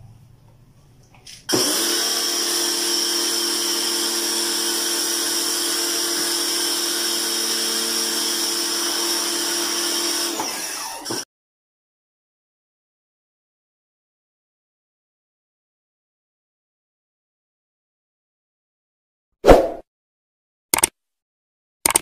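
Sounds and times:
pressure washer whining: 1.5s - 11.2s.

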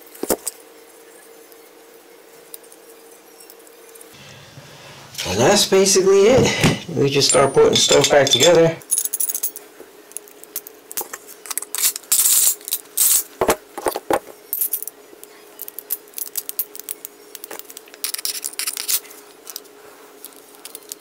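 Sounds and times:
faint steady hum: 0.0s - 21.0s
metal parts clicking and clinking: 7.0s - 21.0s.

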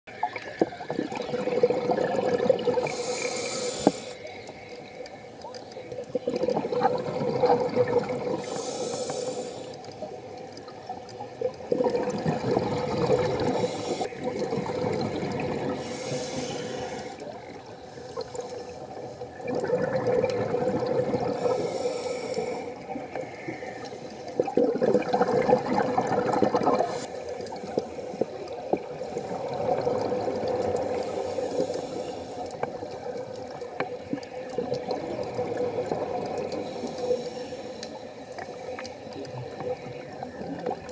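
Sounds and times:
exhaust bubbles gurgling: 0.1s - 3.2s, 6.1s - 8.5s, 10.8s - 16.6s, 19.3s - 21.6s, 22.7s - 31.8s, 32.4s - 37.2s
regulator inhale hiss: 2.8s - 5.1s, 8.4s - 10.0s, 13.4s - 14.1s, 15.8s - 19.4s, 21.4s - 24.4s, 26.8s - 29.8s, 30.8s - 32.9s, 36.5s - 40.5s.

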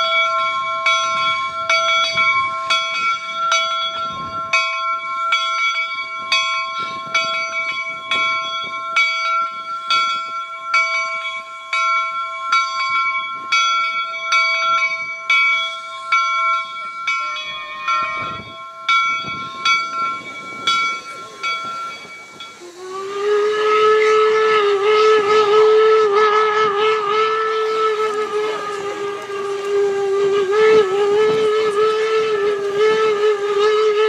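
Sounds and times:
locomotive bell ringing: 0.0s - 34.0s
steam whistle: 14.3s - 34.0s.

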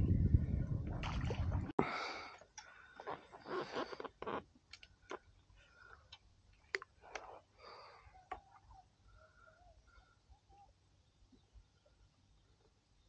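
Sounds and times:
wind rumble on microphone: 0.0s - 1.8s.

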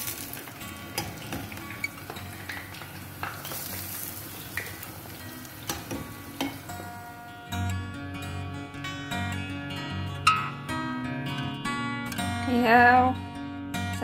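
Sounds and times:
dough sizzling in hot oil: 0.0s - 7.3s
music: 0.0s - 14.0s.

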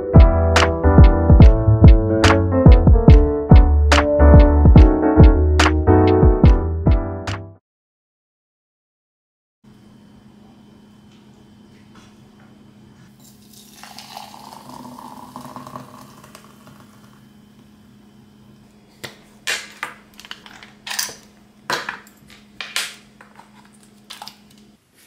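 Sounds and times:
kitchenware clinks and knocks: 19.5s - 24.3s.

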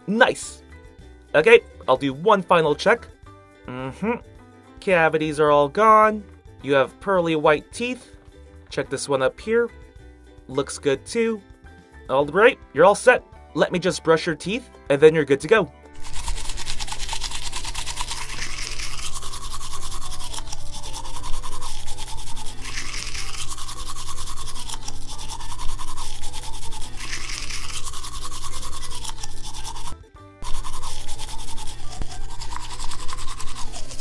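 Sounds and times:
toothbrush scrubbing teeth: 16.0s - 34.0s.

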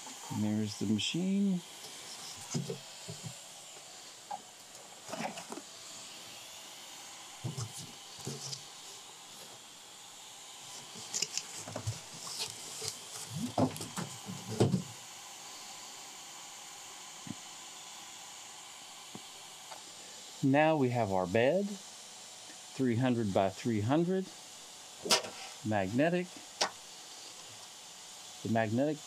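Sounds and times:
faint steady hiss: 0.0s - 5.6s
cardboard box knocks and scrapes: 13.4s - 14.8s.

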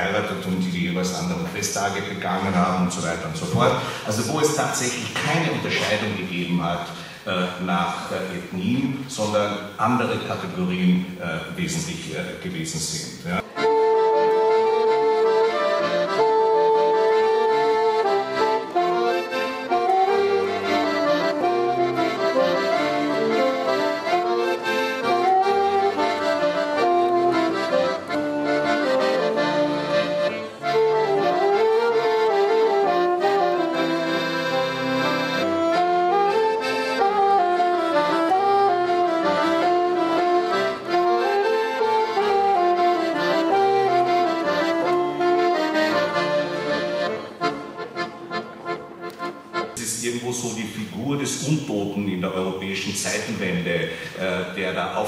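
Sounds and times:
button accordion: 0.0s - 8.4s, 13.2s - 51.8s
saxophone: 13.3s - 49.8s.

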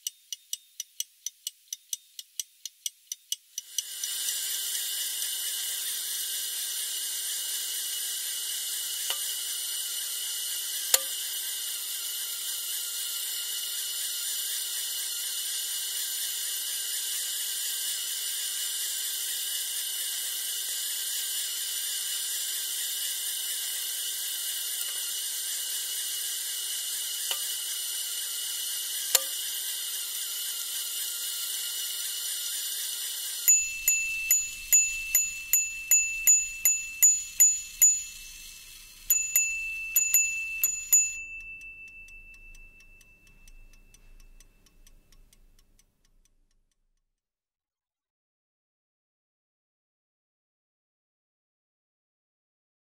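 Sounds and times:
whirring hiss: 3.6s - 44.2s
pocket watch bells striking: 33.5s - 44.6s.

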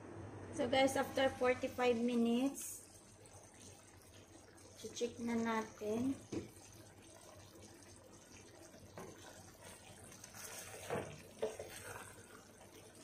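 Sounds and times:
liquid sloshing in a pot: 2.8s - 13.0s
wooden spoon knocking on pot: 6.2s - 6.6s.

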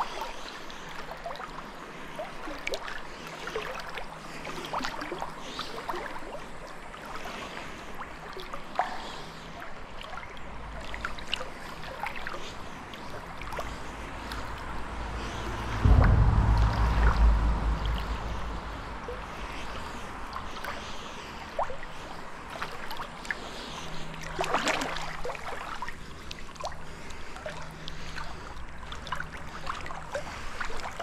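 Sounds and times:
river water gurgling: 0.0s - 15.9s, 18.1s - 31.0s
low rumble: 13.2s - 21.0s.

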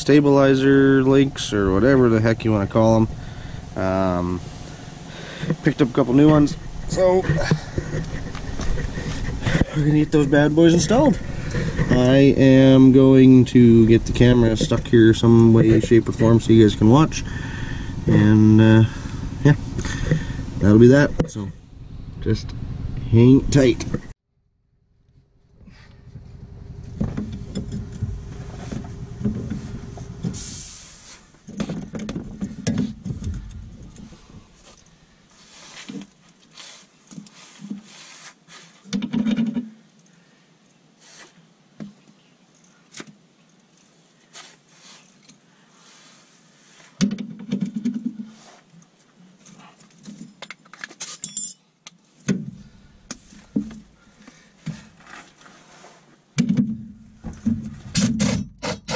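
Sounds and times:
wrench scraping rusty metal: 57.8s - 58.9s.

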